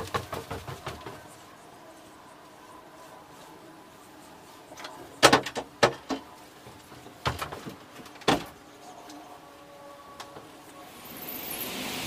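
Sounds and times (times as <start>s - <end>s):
wooden shutter knocking: 0.0s - 1.3s, 5.2s - 8.6s.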